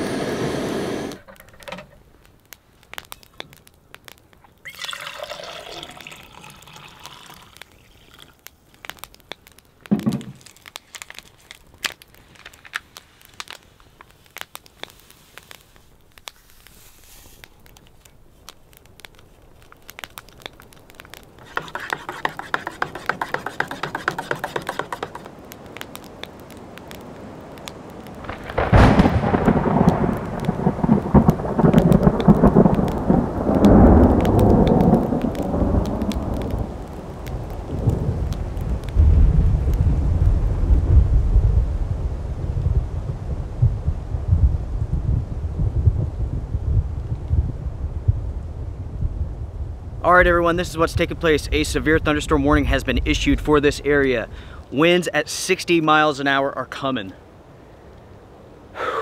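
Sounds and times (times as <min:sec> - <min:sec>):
heavy rain rush: 0:00.0 - 0:01.8, 0:20.0 - 0:42.2
rain patter: 0:00.0 - 0:59.0
deep thunder rumbling: 0:28.1 - 0:53.9.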